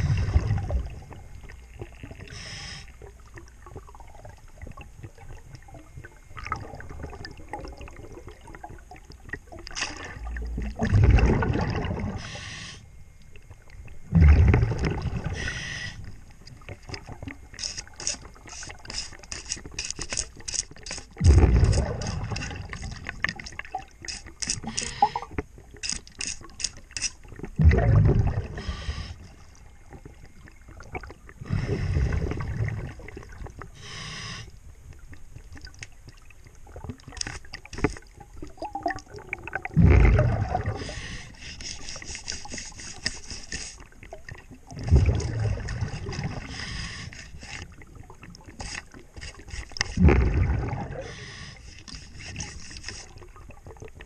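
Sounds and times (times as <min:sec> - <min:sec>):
exhaled bubbles underwater: 0:00.0 - 0:19.0, 0:21.2 - 0:25.8, 0:27.2 - 0:43.0, 0:43.7 - 0:54.0
scrub brush on hull: 0:40.8 - 0:43.8, 0:48.5 - 0:50.0, 0:51.2 - 0:53.3.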